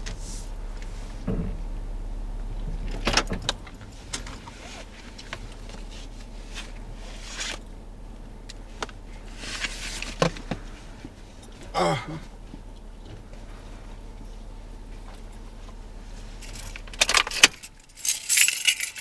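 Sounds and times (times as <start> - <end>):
steady low hum: 0.0 - 19.0
short rustles: 8.7 - 19.0
clicks and rattles: 16.4 - 19.0.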